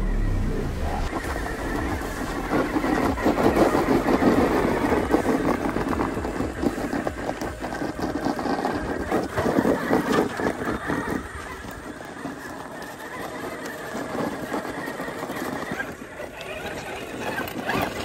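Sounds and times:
rc car drivetrain running: 0.0s - 18.0s
crackle of knocks and clatter: 1.0s - 18.0s.

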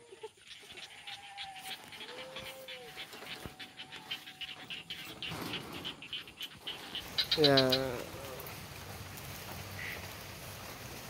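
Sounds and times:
rapid high chirping: 0.5s - 8.1s
animal whine: 0.8s - 6.2s.

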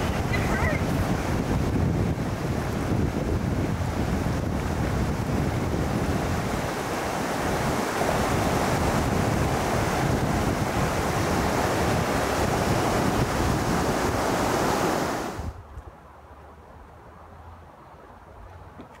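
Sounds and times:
river rushing over rocks: 0.0s - 15.5s.

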